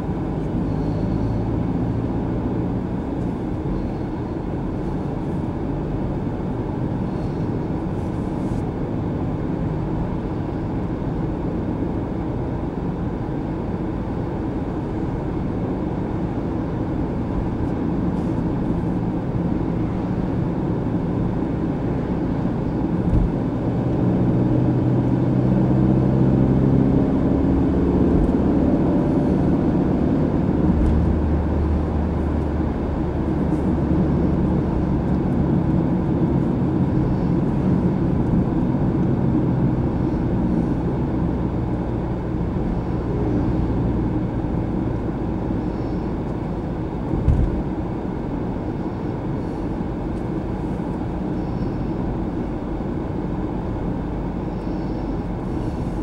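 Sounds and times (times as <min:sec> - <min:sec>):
car engine and tyre hum: 0:00.0 - 0:56.0
car bump: 0:47.2 - 0:47.6.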